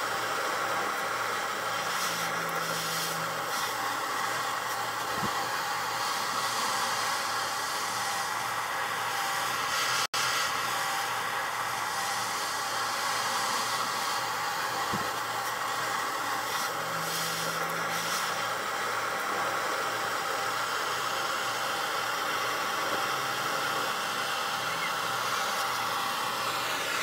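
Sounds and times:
blow torch flame hissing: 0.0s - 27.0s.

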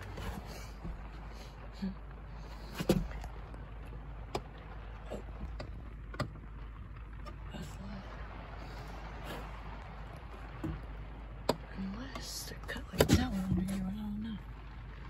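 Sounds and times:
knocks and creaks on wooden joists: 0.0s - 1.4s, 2.4s - 7.5s, 9.2s - 12.2s
steady low hum: 0.0s - 15.0s.

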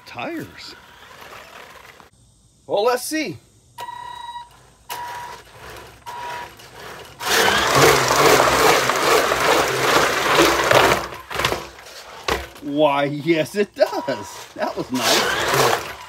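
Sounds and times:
rc truck motors whining: 0.0s - 2.2s, 3.7s - 16.0s
motors and tyres rumbling in pipe: 5.5s - 11.8s, 14.8s - 16.0s.

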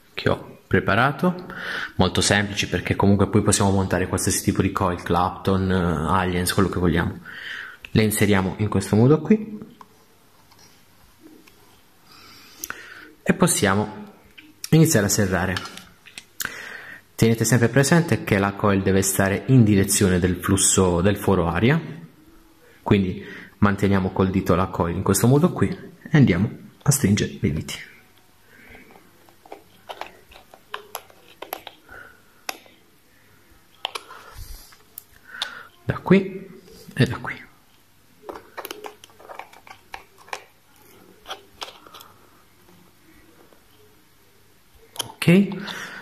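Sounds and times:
soft handling rustle: 28.1s - 32.9s.

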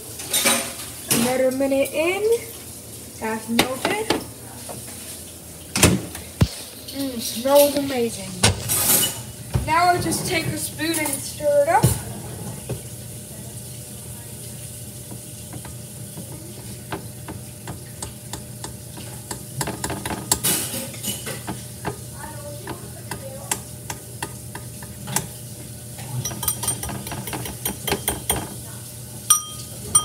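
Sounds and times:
spoon clinking on a bowl: 26.2s - 28.5s, 29.2s - 30.0s.

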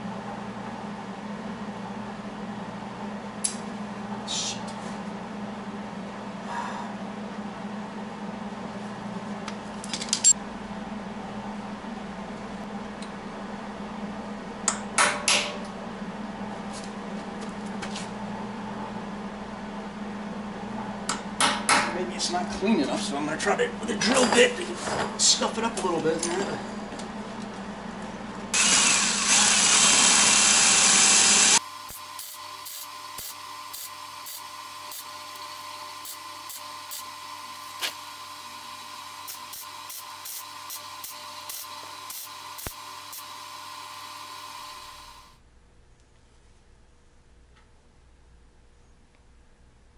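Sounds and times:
steady tool whine: 28.5s - 45.4s.

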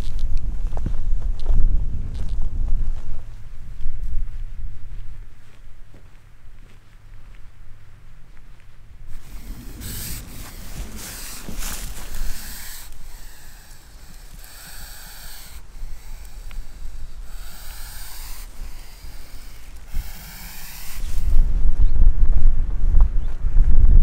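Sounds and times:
low wind rumble: 0.0s - 24.0s
snake hissing: 9.1s - 21.5s.

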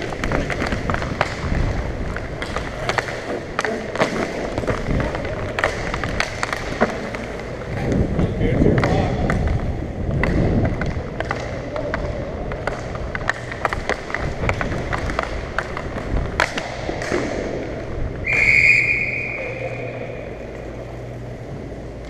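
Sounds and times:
hockey sticks hitting puck: 0.0s - 22.0s
referee's whistle blast: 18.2s - 20.0s.

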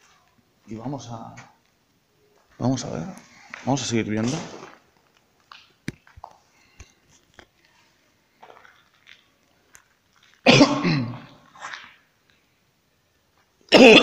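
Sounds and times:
man coughing: 10.5s - 11.3s, 13.7s - 14.0s.

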